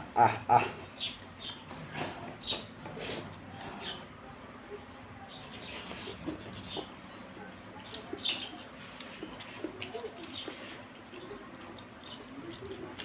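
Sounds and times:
small birds chirping: 0:00.6 - 0:13.0
clicks of someone eating: 0:08.9 - 0:13.0.

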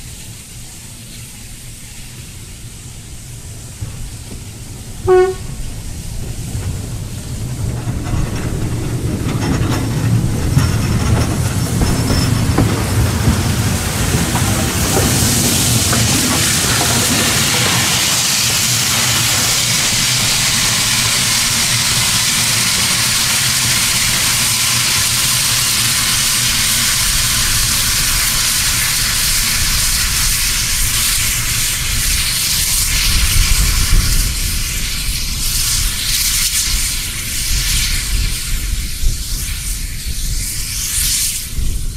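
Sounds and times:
hiss of escaping steam: 0:00.0 - 0:41.9
train wheels clattering on rails: 0:00.0 - 0:41.9
steam locomotive whistle: 0:05.0 - 0:05.7.

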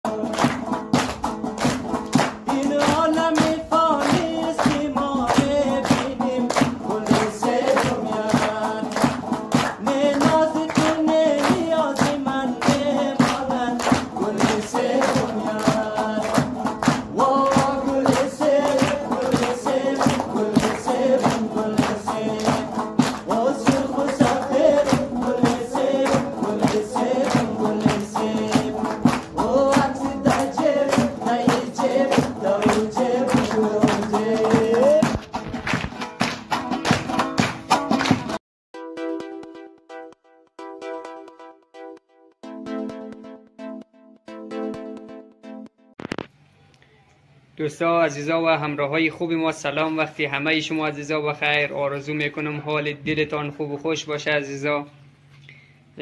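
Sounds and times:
song with singing: 0:00.0 - 0:01.1, 0:02.2 - 0:35.6
quick steady drum beat: 0:00.1 - 0:35.8.

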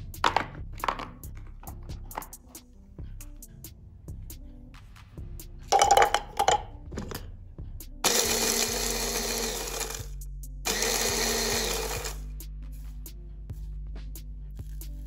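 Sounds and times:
electric food chopper grinding: 0:08.0 - 0:10.1, 0:10.7 - 0:12.2.

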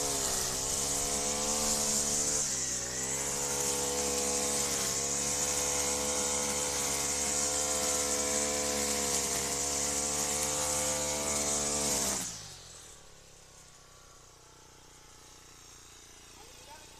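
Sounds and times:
cutting head whirring through grass: 0:00.0 - 0:13.2
brushcutter engine running: 0:00.0 - 0:16.9.

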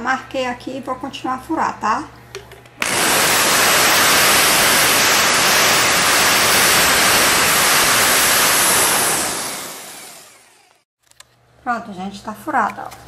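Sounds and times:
electric drill boring plastic pipe: 0:02.8 - 0:10.8.

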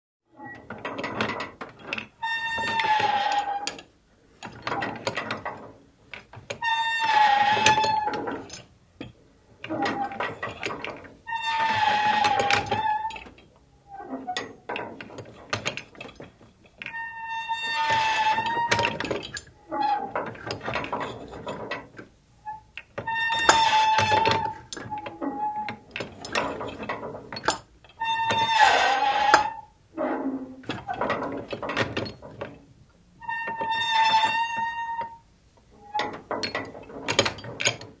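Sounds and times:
metal boat creaking and clanking: 0:00.5 - 0:38.0
knocks and clanks: 0:36.0 - 0:38.0.

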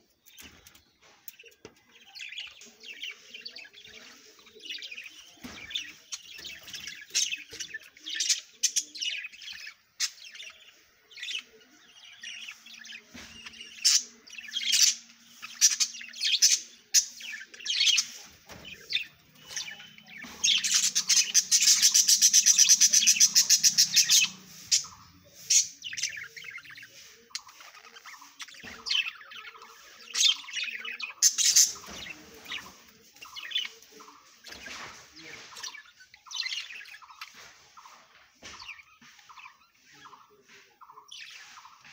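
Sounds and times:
budgerigars chirping: 0:01.3 - 0:41.9
rapid bird chattering: 0:12.2 - 0:37.9.

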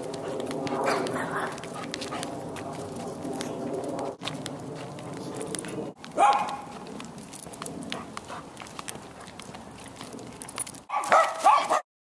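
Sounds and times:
dog claws on pavement: 0:00.0 - 0:11.8
footsteps on pavement: 0:00.0 - 0:11.8
dog barking: 0:06.2 - 0:06.8, 0:10.9 - 0:11.8.

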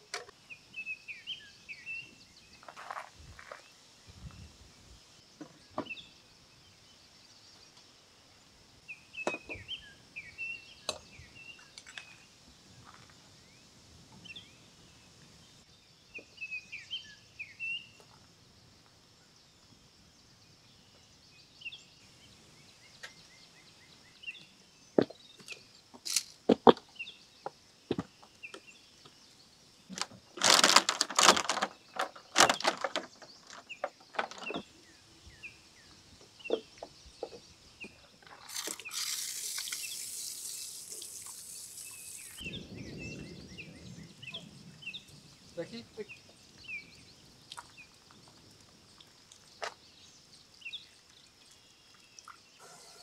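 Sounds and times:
small birds chirping: 0:00.0 - 0:53.0
camp gear knocking and clinking: 0:29.9 - 0:34.7.

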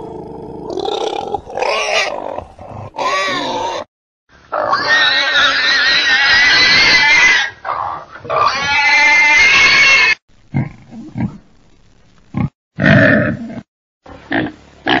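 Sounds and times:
pig grunting: 0:00.0 - 0:03.9
pig squealing: 0:00.7 - 0:03.9, 0:04.5 - 0:10.2.

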